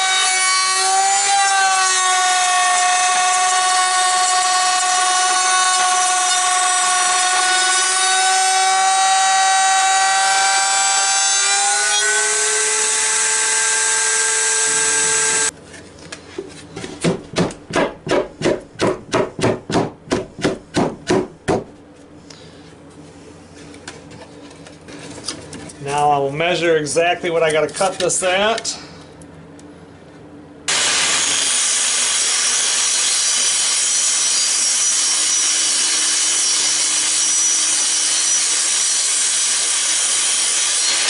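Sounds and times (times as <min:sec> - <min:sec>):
router whining: 0:00.0 - 0:15.6, 0:30.7 - 0:41.0.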